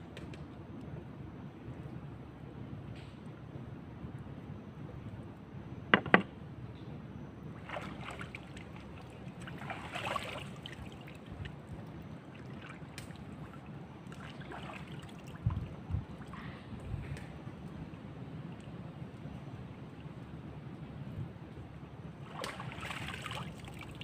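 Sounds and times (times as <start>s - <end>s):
sharp knocks: 6.0s - 6.3s
hands splashing water: 7.6s - 11.2s, 22.3s - 24.0s.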